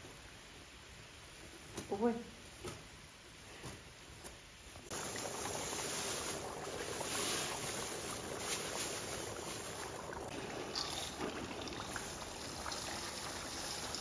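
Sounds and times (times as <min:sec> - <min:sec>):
hot oil sizzling in a wok: 0:04.9 - 0:14.0.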